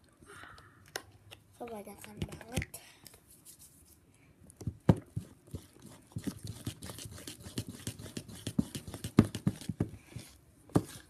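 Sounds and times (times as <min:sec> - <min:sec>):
slime squelching: 0:05.0 - 0:11.0.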